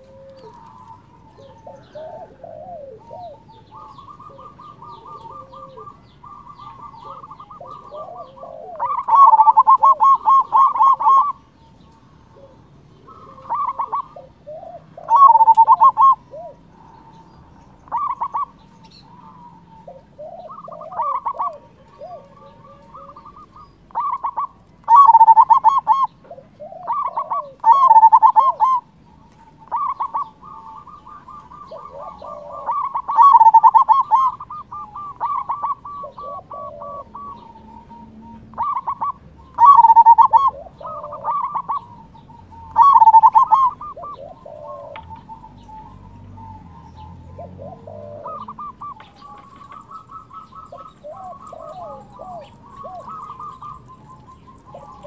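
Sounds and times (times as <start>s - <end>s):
dove cooing: 0.0s - 55.0s.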